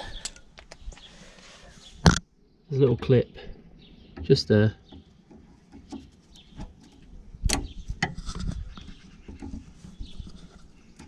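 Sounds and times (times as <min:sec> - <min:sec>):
tool knocking and rubbing: 0:07.9 - 0:11.0.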